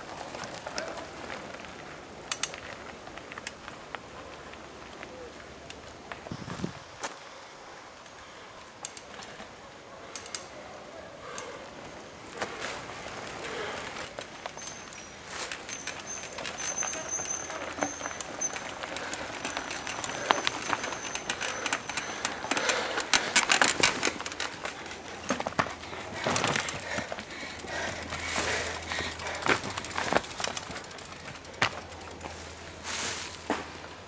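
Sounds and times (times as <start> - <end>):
tyres crunching through dry leaves: 0.0 - 2.0, 12.2 - 34.0
mountain bikes clattering: 0.0 - 6.7, 8.1 - 34.0.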